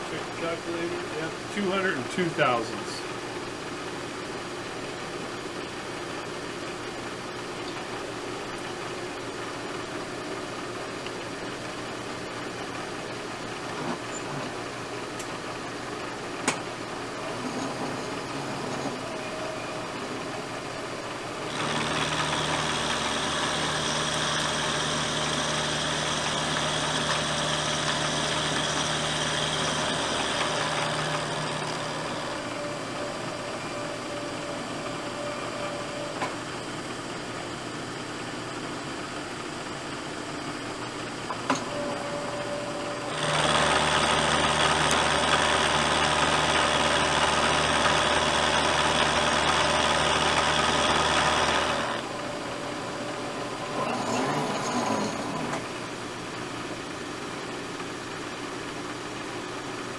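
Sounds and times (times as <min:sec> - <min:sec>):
milling machine cutting metal: 0:17.2 - 0:37.4, 0:41.4 - 0:56.0.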